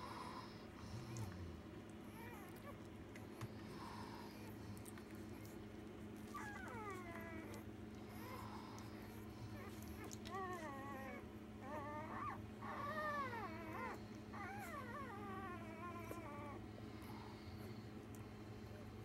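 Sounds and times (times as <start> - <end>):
low steady hum: 0.0 - 19.0
puppies whimpering: 2.1 - 2.9, 6.2 - 17.8.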